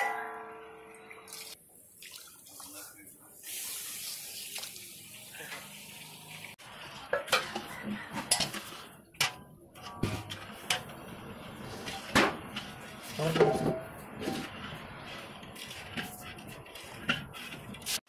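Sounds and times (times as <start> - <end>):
metal ladle scraping a wok: 6.8 - 18.0.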